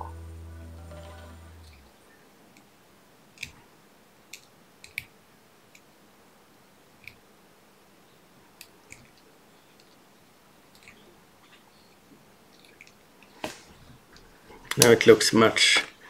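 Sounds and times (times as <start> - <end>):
faint small clicks and ticks: 3.4 - 3.6, 4.3 - 5.9, 7.0 - 7.3, 8.5 - 10.1, 10.7 - 13.3.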